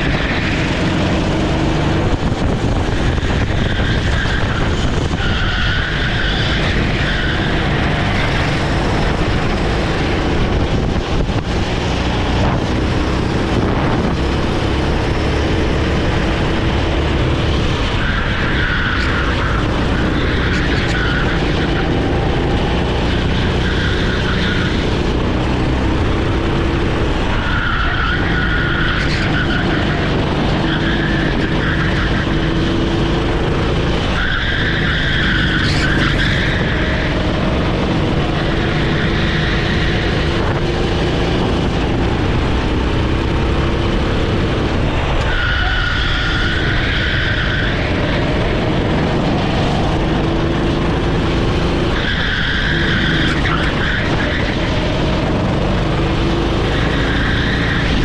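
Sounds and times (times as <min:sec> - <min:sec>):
kart engine running hard: 0:00.0 - 0:58.0
tyres squealing: 0:27.2 - 0:43.2, 0:44.7 - 0:55.7.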